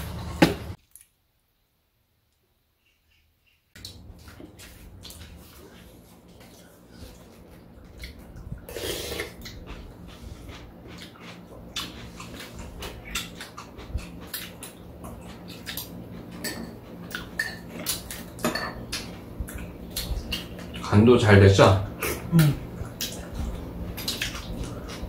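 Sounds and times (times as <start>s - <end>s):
eating noises: 2.8s - 20.9s, 21.9s - 25.0s.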